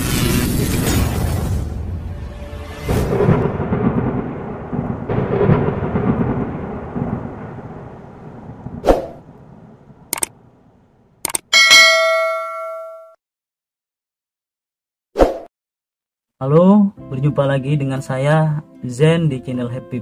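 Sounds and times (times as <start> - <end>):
sharp thunder hit: 0.9 - 10.7
rolling thunder rumbles: 2.9 - 11.2.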